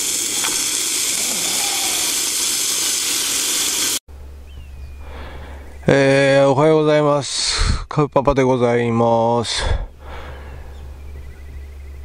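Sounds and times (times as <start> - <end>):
bacon sizzling in a frying pan: 0.0 - 4.0.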